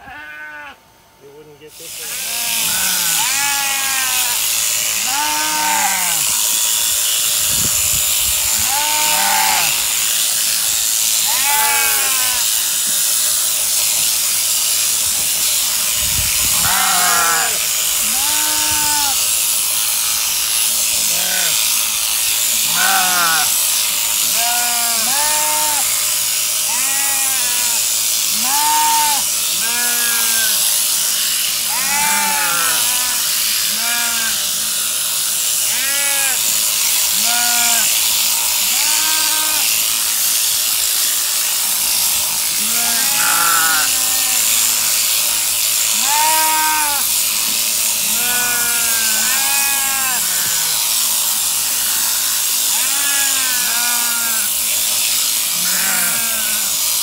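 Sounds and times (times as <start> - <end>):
sheep bleating: 0.0 - 0.8, 2.0 - 6.4, 8.6 - 10.0, 11.2 - 12.6, 16.6 - 19.3, 21.0 - 21.7, 22.6 - 23.6, 24.2 - 26.0, 26.6 - 30.7, 31.7 - 34.6, 35.7 - 39.8, 42.5 - 45.1, 45.9 - 47.2, 48.0 - 51.0, 52.7 - 54.6, 55.5 - 56.8
sheep shearing handpiece whirring: 1.4 - 57.0.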